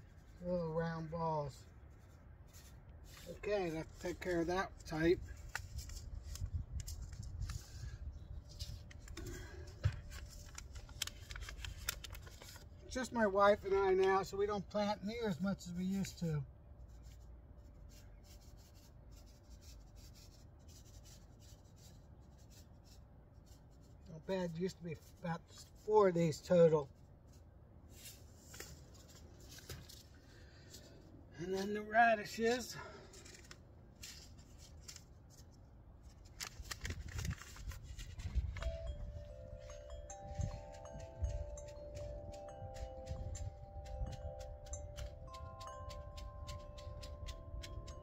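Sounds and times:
seeds rustling in paper packet: 1.8 - 14.3, 31.6 - 47.9
wind chime ringing: 38.6 - 48.0.

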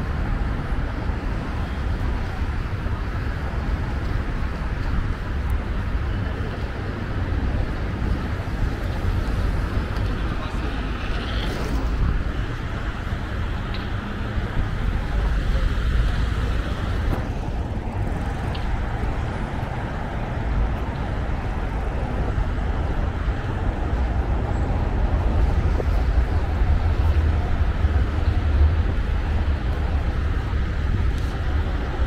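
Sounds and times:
highway traffic: 0.0 - 32.0.

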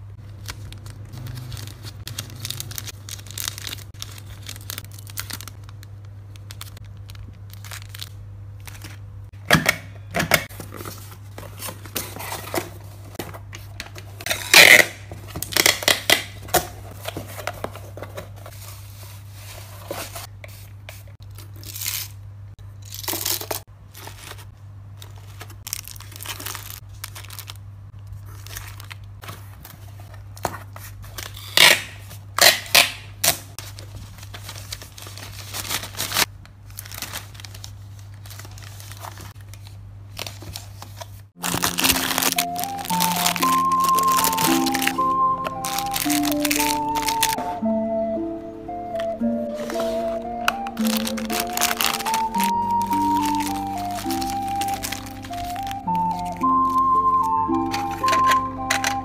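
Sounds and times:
shredded paper rustling: 0.0 - 9.0, 10.4 - 22.2, 22.9 - 31.4, 33.5 - 47.4, 48.9 - 59.0
plastic wrappers crinkling: 0.0 - 9.1, 10.0 - 47.4, 48.9 - 59.0
packing tape pulled from dispenser: 14.2 - 16.4, 31.1 - 33.5, 41.4 - 47.4, 49.0 - 59.0.

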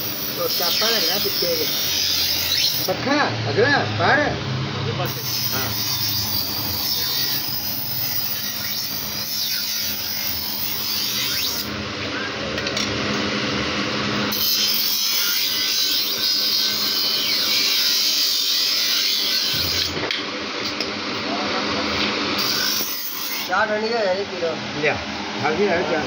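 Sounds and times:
knife blade grinding rasp: 0.0 - 3.0, 5.0 - 11.7, 14.3 - 20.0, 22.4 - 23.5
bench grinder motor hum: 0.0 - 4.3, 5.0 - 20.9, 22.0 - 23.6.

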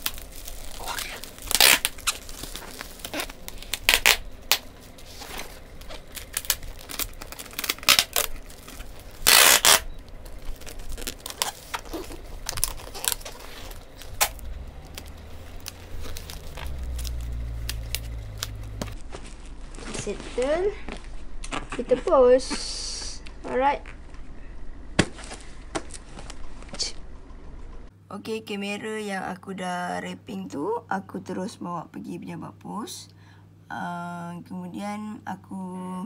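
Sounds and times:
packing tape pulled off roll: 0.0 - 20.1
plastic crinkling: 0.0 - 22.1.

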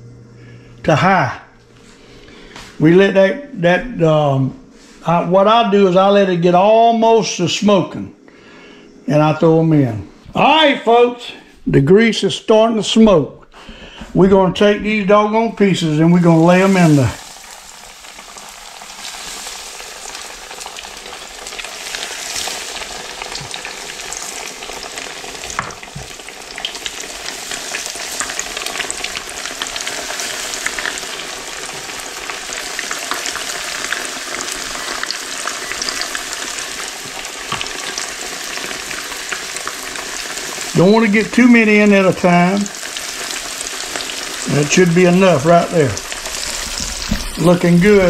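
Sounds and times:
fish frying in grease: 16.3 - 48.0.

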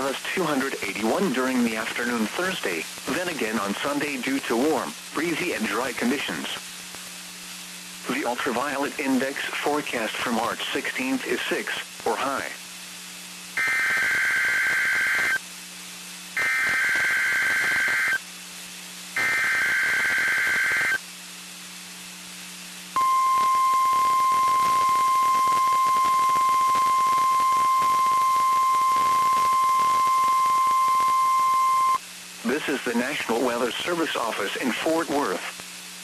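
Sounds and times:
radio hiss: 0.0 - 18.3, 19.1 - 21.0, 21.6 - 36.0
warning alarm tone: 16.4 - 18.2, 19.2 - 21.0, 23.0 - 32.0
low hum: 23.0 - 32.1.

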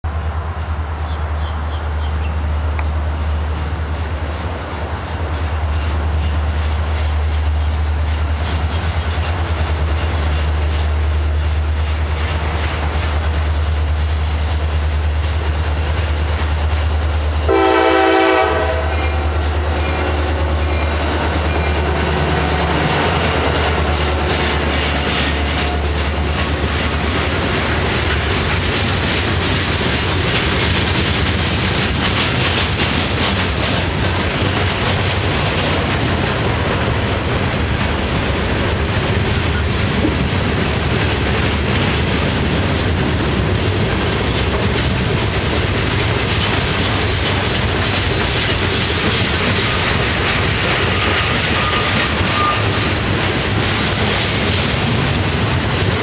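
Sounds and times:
train low rumble: 0.0 - 56.0
train wheels clattering over rail joints: 3.1 - 56.0
train horn blast: 17.4 - 20.9, 50.8 - 52.9.

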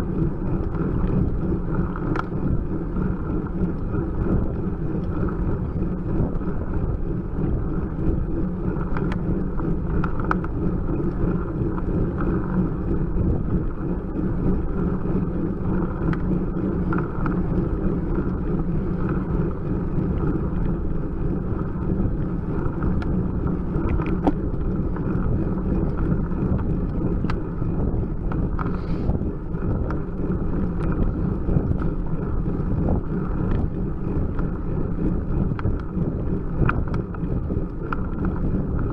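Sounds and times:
wind rush on microphone: 0.0 - 38.9
faint clicks: 1.8 - 2.4, 8.8 - 12.3, 16.0 - 17.5, 33.3 - 33.7.

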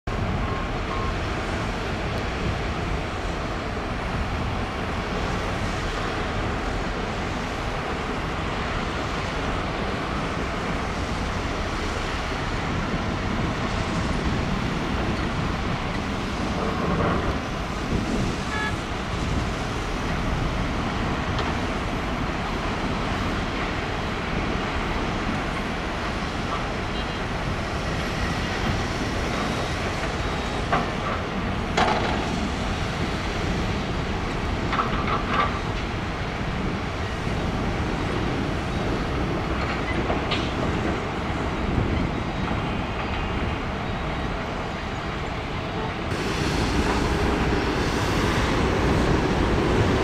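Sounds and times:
heavy machinery engine din: 0.1 - 50.0.

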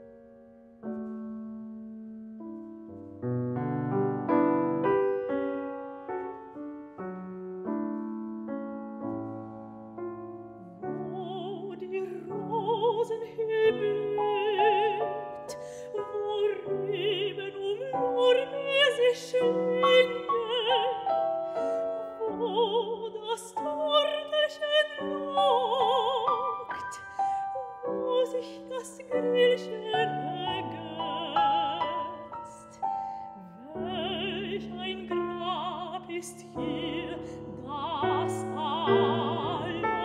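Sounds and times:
slow quiet piano: 0.0 - 40.0
woman singing with vibrato: 10.6 - 21.2, 22.2 - 32.8, 33.4 - 40.0.

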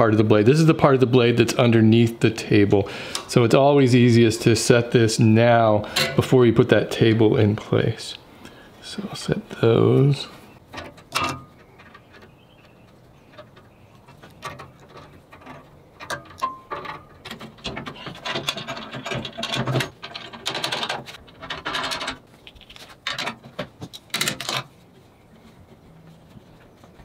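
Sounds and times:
metal table scraping and clattering: 5.8 - 6.4, 14.5 - 22.2
metal parts clicking and knocking: 5.9 - 6.3, 13.2 - 24.7.

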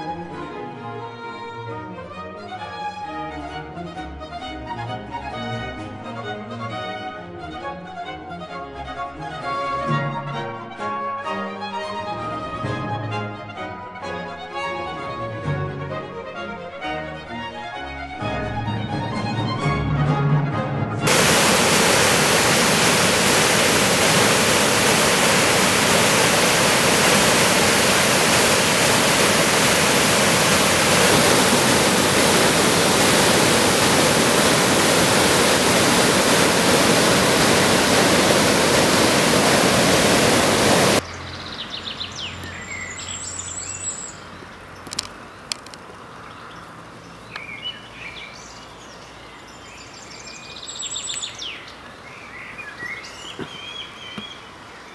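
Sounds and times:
water rushing over weir: 21.1 - 41.0
birds chirping: 21.1 - 54.9.

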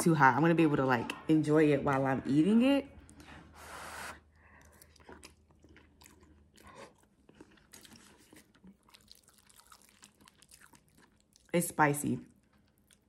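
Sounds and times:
quiet chewing: 3.0 - 11.6, 12.2 - 13.0.

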